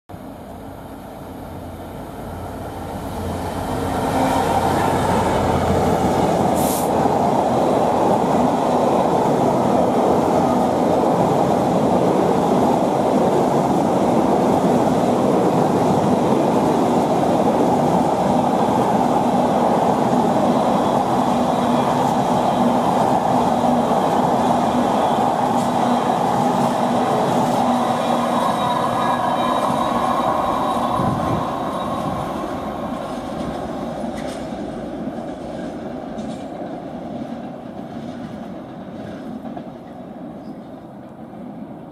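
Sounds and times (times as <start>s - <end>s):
diesel locomotive engine: 0.1s - 41.9s
train wheels rumbling on rail: 0.2s - 41.9s
short high hiss: 6.6s - 7.0s.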